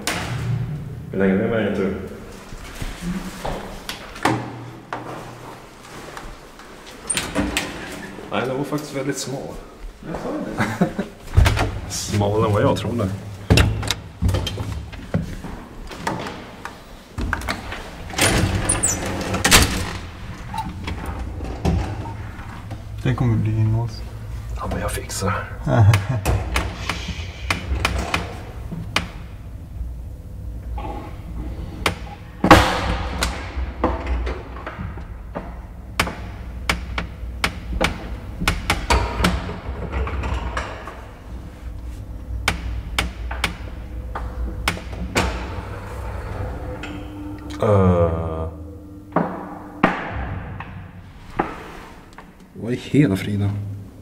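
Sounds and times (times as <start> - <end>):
low steady hum: 7.1 - 54.0
sharp clicks and knocks: 33.2 - 41.0
loud bang: 48.6 - 51.2.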